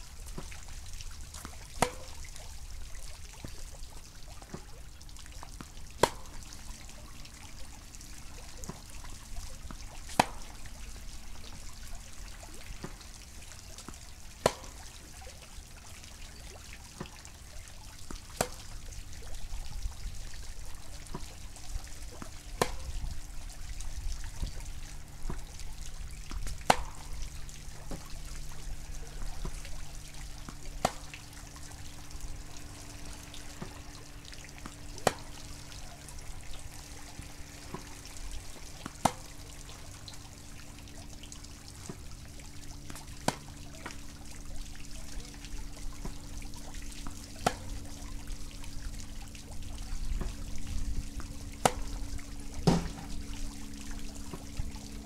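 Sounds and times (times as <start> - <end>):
faint steady hum: 0.0 - 55.0
tennis racket hitting ball: 1.4 - 2.2, 6.0 - 6.4, 10.1 - 10.5, 14.4 - 14.8, 18.4 - 18.6, 26.6 - 27.0, 30.7 - 31.1, 35.0 - 35.3, 38.8 - 39.2, 43.2 - 43.5, 51.6 - 52.0, 52.6 - 53.1.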